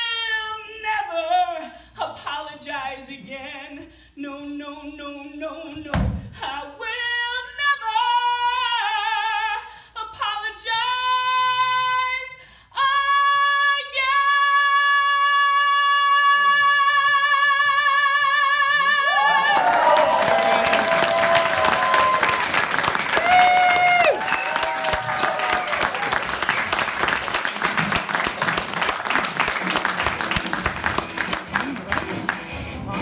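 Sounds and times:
woman singing: 0.0 - 19.2
audience applause: 19.1 - 33.0.

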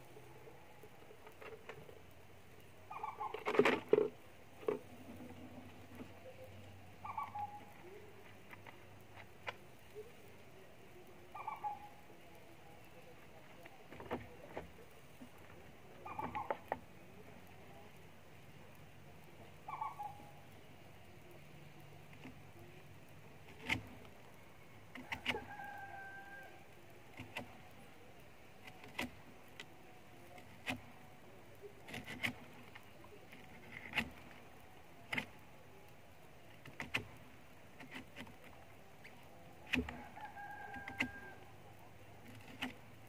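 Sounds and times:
rooster crowing: 25.0 - 26.7, 39.9 - 41.6.

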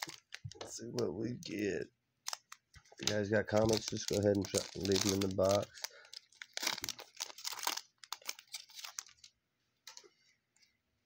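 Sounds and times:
wrapper tearing and crinkling: 0.0 - 0.4, 2.2 - 9.3.

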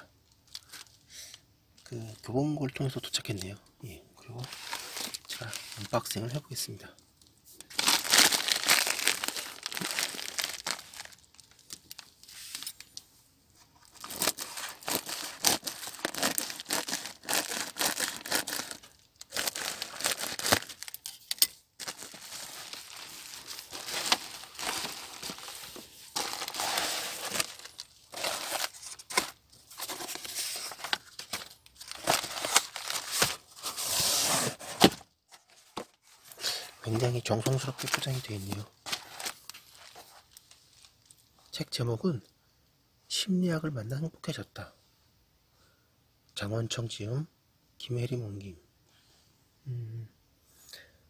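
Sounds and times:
plastic mailer tearing and crinkling: 4.4 - 6.2, 7.7 - 12.9, 13.8 - 36.3, 37.0 - 40.5.

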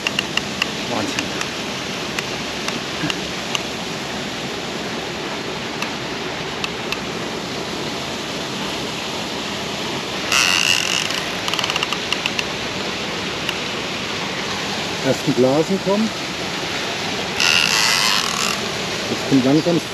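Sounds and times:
fishing reel drag buzzing: 10.2 - 12.4, 17.4 - 18.8
fishing reel clicks: 10.3 - 12.4, 17.4 - 18.6.

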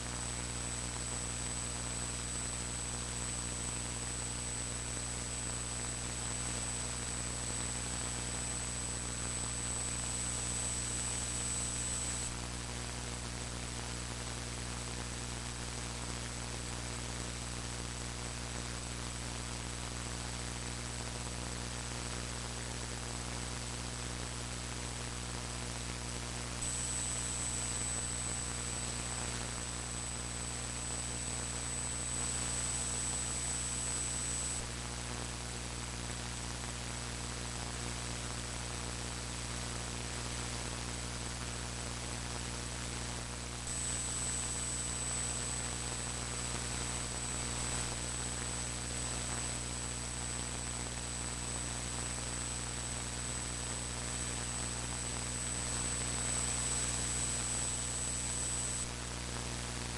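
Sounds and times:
electrical hum: 0.0 - 16.3, 22.0 - 35.6, 39.7 - 51.4, 52.0 - 59.9
static hiss: 0.0 - 59.9
thin high whine: 5.2 - 12.4, 26.5 - 34.7, 43.2 - 50.5, 51.1 - 59.0.

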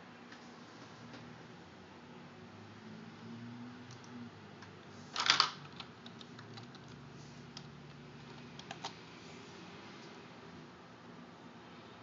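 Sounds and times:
keyboard keys clicking: 5.2 - 7.0, 8.3 - 9.0.

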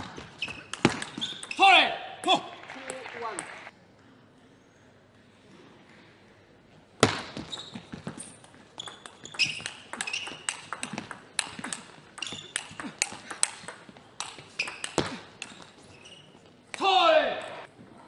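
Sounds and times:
shoes squeaking on floor: 0.0 - 1.6, 7.3 - 13.2, 14.4 - 16.7
table tennis ball clicking: 8.8 - 15.7.

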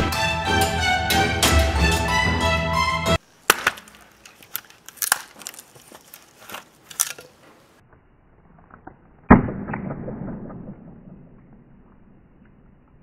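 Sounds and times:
hatchet chopping firewood: 3.4 - 7.4.

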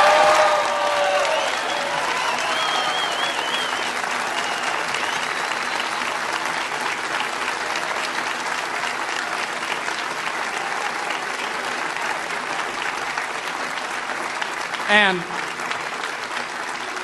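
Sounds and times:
large audience applauding: 0.0 - 17.0.

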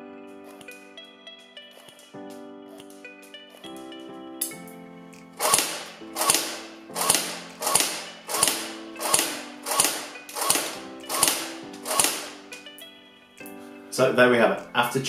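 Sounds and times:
background music: 0.0 - 15.0
airsoft gun single shots: 5.4 - 12.4.

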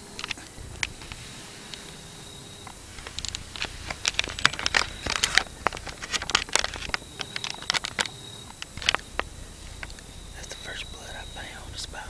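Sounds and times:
dry leaves crackling and rustling: 0.0 - 12.0
camera handling noise: 3.0 - 10.0.

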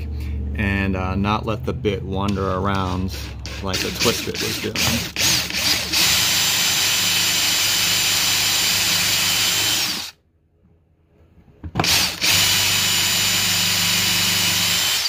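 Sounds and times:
power drill boring into wood: 2.8 - 10.2, 11.8 - 15.0.

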